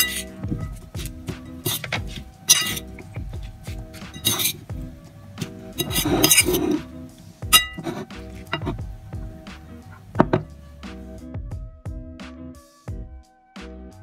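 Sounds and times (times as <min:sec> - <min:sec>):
fork scraping a plate: 0:00.0 - 0:04.8, 0:05.4 - 0:08.9
background music: 0:00.0 - 0:14.0.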